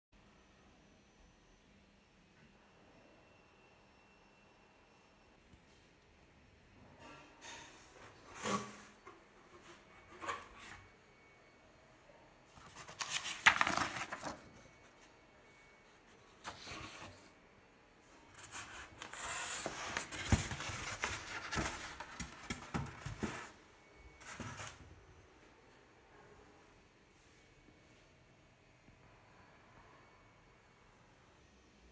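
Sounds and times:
cardboard and paper rustling: 12.6s - 14.6s, 16.3s - 17.3s, 18.4s - 23.6s, 24.2s - 24.8s.

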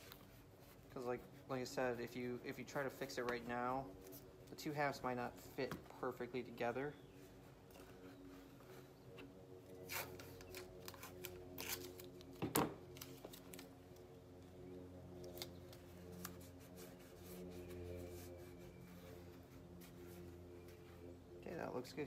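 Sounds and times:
faint steady hum: 0.0s - 22.0s
tape crinkling and rubbing: 7.4s - 14.1s, 15.2s - 20.9s
tape crackle: 9.7s - 14.2s.

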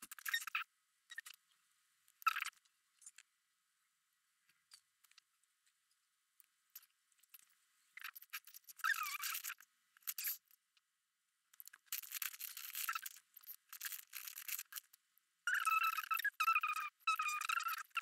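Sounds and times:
markers scratching on paper: 8.0s - 10.4s, 11.6s - 14.9s.

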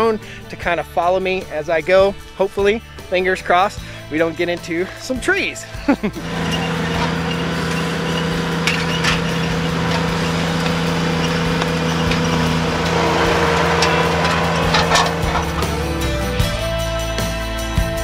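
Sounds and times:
sharp clicks and knocks: 6.2s - 16.0s
motor running steadily: 6.2s - 16.6s.

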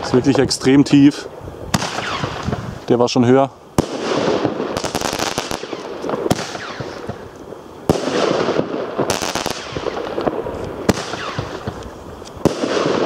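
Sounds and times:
firework shells bursting with bangs: 1.7s - 2.8s, 3.7s - 13.0s
crackling of bursting stars: 1.8s - 13.0s.

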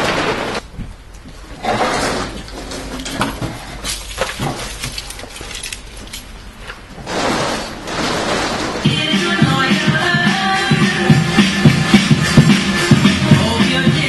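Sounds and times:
rustling noise: 0.0s - 8.9s.

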